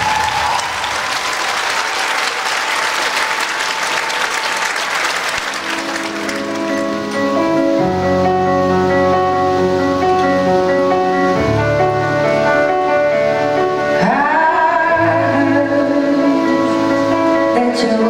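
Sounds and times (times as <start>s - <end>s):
audience applauding: 0.0s - 7.8s
slow music with held notes: 5.7s - 18.0s.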